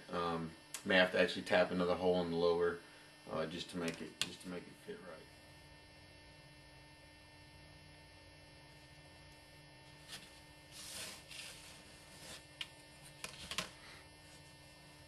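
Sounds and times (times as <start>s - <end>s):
faint mains hum: 0.0s - 15.0s
scraping rustle: 10.0s - 12.5s.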